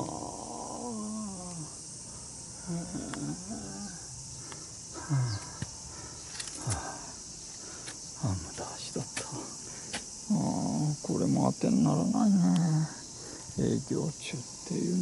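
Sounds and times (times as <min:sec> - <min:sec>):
man mumbling and sighing: 0:00.0 - 0:01.8, 0:02.6 - 0:04.1, 0:05.0 - 0:05.6, 0:12.1 - 0:13.0
cicadas droning: 0:00.0 - 0:15.0.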